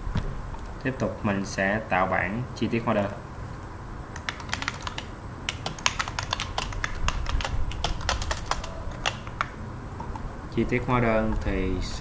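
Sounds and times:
computer keyboard typing: 4.1 - 9.6.

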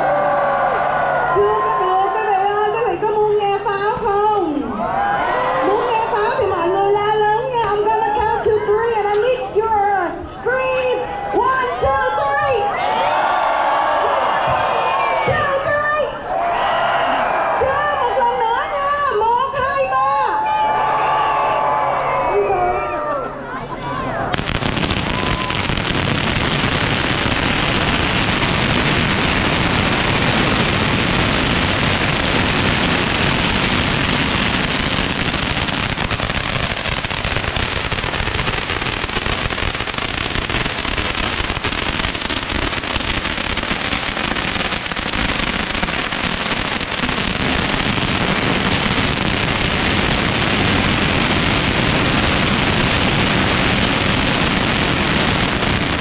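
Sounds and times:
firecrackers crackling rapidly: 24.3 - 56.0.

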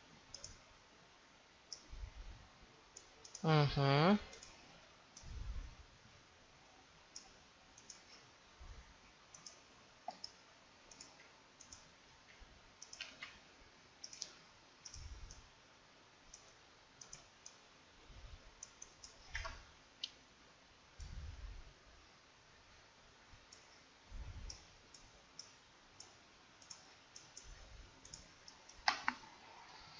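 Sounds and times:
computer mouse clicks: 0.3 - 0.7, 1.7 - 2.0, 2.9 - 3.5, 4.3 - 5.4, 7.1 - 8.3, 9.3 - 13.4, 14.0 - 15.5, 16.3 - 17.6, 18.6 - 20.2, 23.5 - 23.8, 24.4 - 29.3.

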